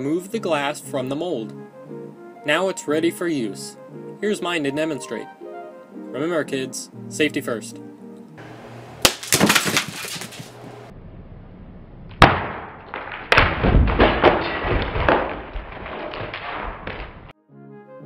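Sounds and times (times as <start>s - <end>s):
slowed glass shards crunching: 9.1s - 10.6s, 14.0s - 17.3s.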